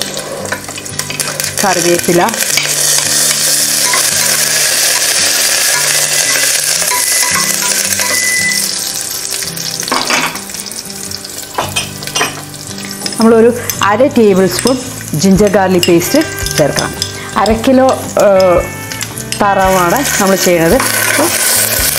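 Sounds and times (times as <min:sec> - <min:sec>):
chillies sizzling in hot oil: 0:00.0 - 0:21.9.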